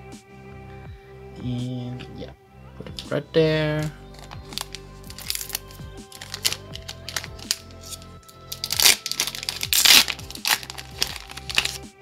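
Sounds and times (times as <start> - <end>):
background music: 0.0 - 12.0
foil wrapper crinkling and ripping: 4.1 - 11.8.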